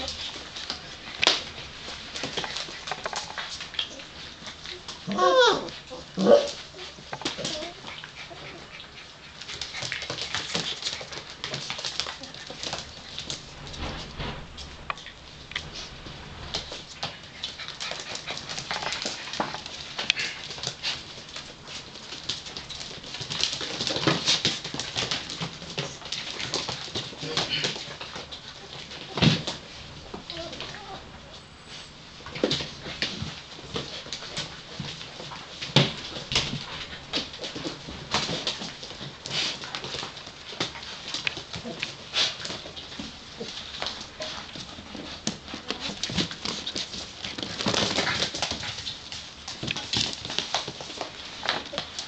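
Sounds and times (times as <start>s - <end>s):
puppies scuffling on blanket: 0.0s - 52.0s
puppies whimpering: 5.1s - 6.1s, 6.8s - 9.3s.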